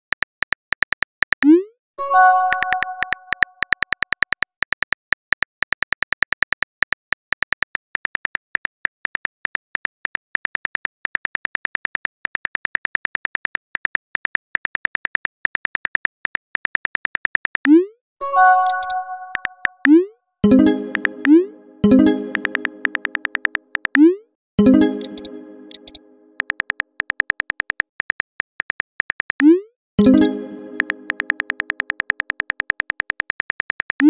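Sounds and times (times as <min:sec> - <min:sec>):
chime: 0:02.0 - 0:03.3, 0:18.2 - 0:19.4, 0:20.4 - 0:23.0, 0:30.0 - 0:31.2
keyboard tap clicks: 0:02.5 - 0:04.8, 0:18.6 - 0:20.0, 0:20.6 - 0:24.1, 0:24.8 - 0:34.0.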